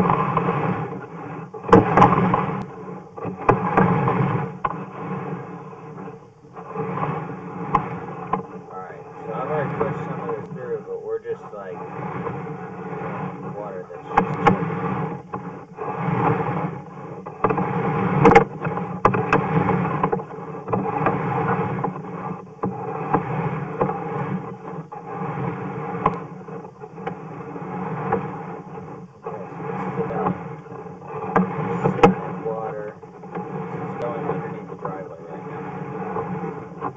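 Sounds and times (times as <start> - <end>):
cable rubbing and scraping: 0.0 - 36.9
steady low hum: 0.0 - 36.9.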